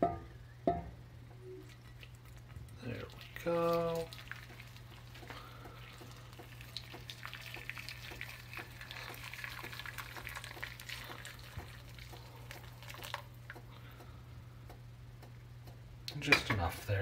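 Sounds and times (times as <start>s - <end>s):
water pouring into skillet: 1.7s - 13.4s.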